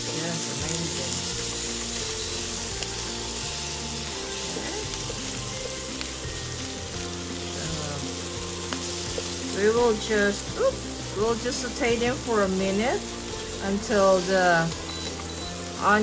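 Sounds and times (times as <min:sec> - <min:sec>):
onions sizzling in hot oil: 0:00.0 - 0:16.0
soft background music: 0:00.0 - 0:16.0
tongs stirring in pan: 0:00.0 - 0:16.0.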